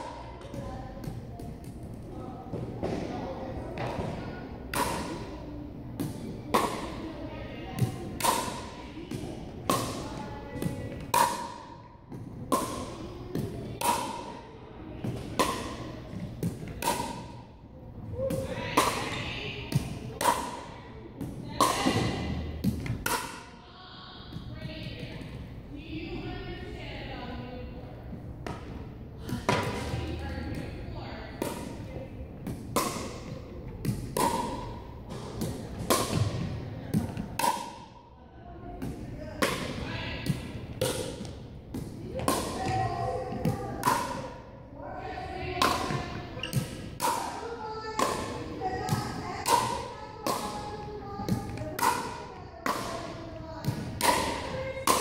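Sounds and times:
paddle hitting ball: 3.8s - 5.3s, 6.0s - 7.1s, 7.8s - 14.4s, 15.0s - 17.4s, 18.2s - 23.5s, 31.4s - 31.8s, 32.4s - 37.9s, 38.8s - 44.4s, 45.6s - 55.0s
ball bouncing on floor: 38.8s - 44.2s, 45.6s - 47.3s.

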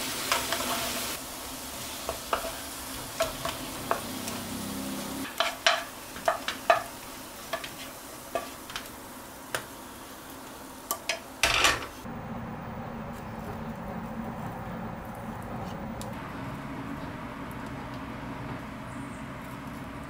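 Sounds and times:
utensil scraping frying pan: 0.0s - 1.2s, 2.0s - 8.9s, 11.0s - 12.1s
light sizzle: 0.0s - 20.0s.

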